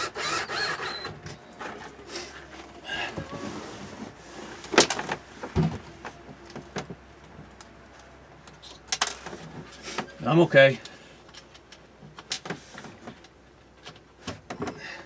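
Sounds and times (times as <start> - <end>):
cordless drill driving screws: 0.0 - 1.2.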